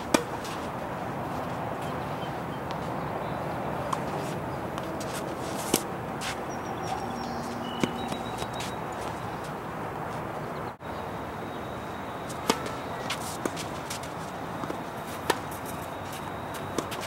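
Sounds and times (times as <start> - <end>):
tennis racket striking ball: 0.0 - 0.6, 12.3 - 17.0
steady outdoor hiss: 0.0 - 17.0.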